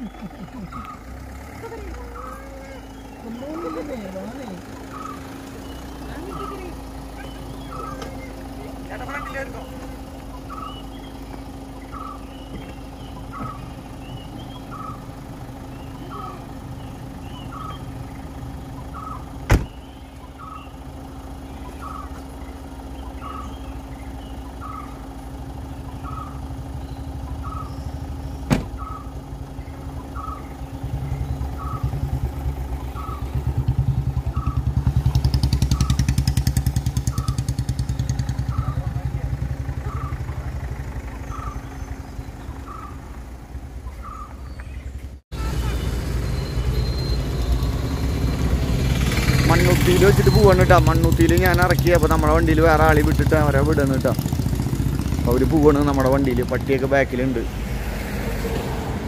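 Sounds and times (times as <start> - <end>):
car engine idling: 0.0 - 59.0
car door slamming: 19.4 - 19.8, 28.4 - 29.0.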